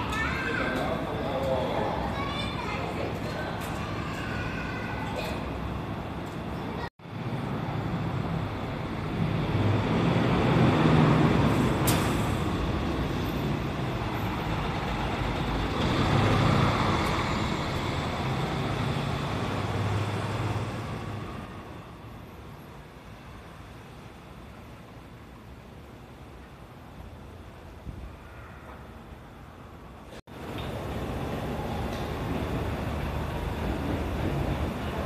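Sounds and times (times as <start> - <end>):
road noise: 0.0 - 35.0
bus engine running: 3.5 - 23.1, 30.3 - 35.0.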